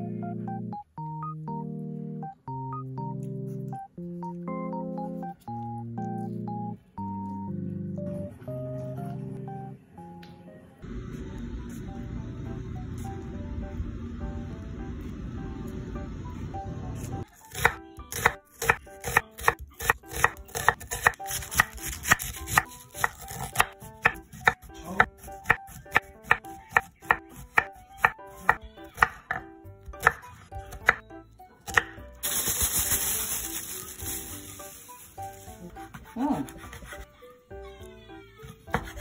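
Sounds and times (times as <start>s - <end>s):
knife chopping on wooden board: 17.5s - 30.2s, 35.9s - 37.0s, 38.7s - 39.0s.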